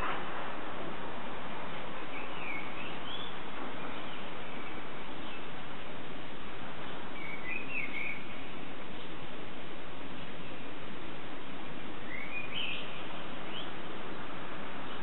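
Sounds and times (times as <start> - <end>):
outdoor background hiss: 0.0 - 15.0
bird chirping: 2.0 - 5.5, 7.1 - 9.1, 12.1 - 15.0.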